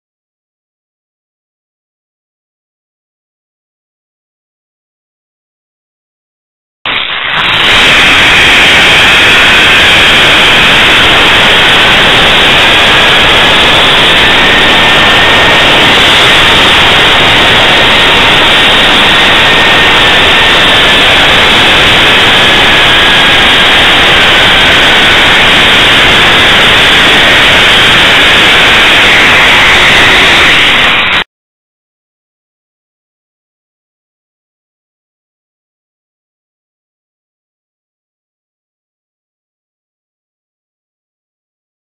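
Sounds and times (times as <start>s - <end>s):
pulley wheels whining on cable: 6.9s - 31.2s
wind rushing on microphone: 7.2s - 31.2s.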